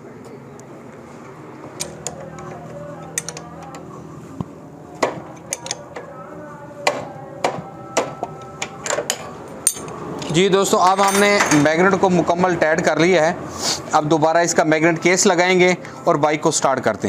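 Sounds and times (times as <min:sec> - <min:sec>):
spanner clicking on metal: 0:03.0 - 0:03.8, 0:05.3 - 0:06.0.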